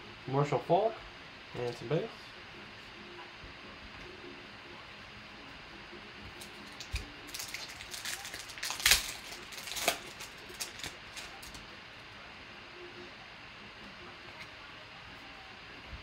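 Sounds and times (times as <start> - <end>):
foil wrapper tearing and crinkling: 6.4 - 11.6.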